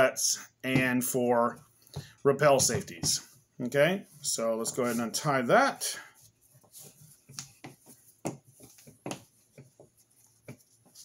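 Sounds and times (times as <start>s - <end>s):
rope rustling and clicking: 6.5s - 11.0s.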